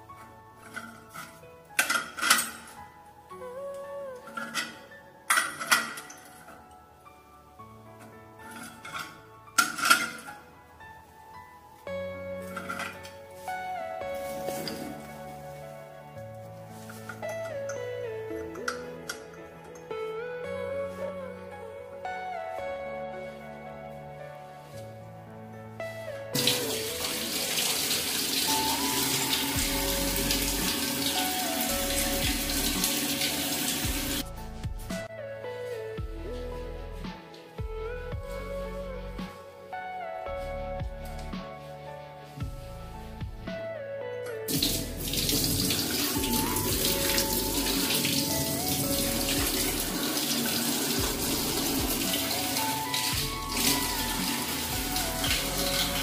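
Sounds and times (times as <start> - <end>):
background music: 0.0 - 56.0
tap water pouring into steel sink: 26.4 - 34.2, 44.5 - 56.0.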